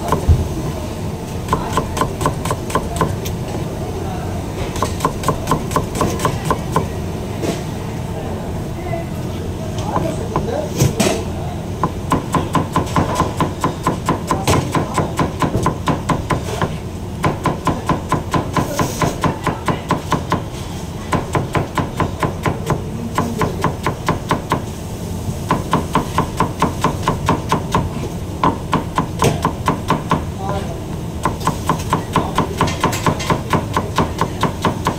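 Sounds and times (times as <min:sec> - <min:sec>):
knife chopping on cutting board: 0:04.8 - 0:06.9, 0:25.5 - 0:30.2.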